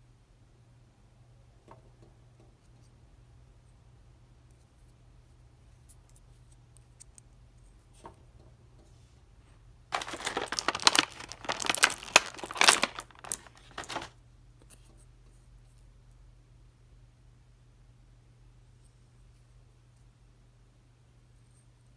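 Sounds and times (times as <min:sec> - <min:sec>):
plastic blister tray crinkling: 0:09.9 - 0:14.2.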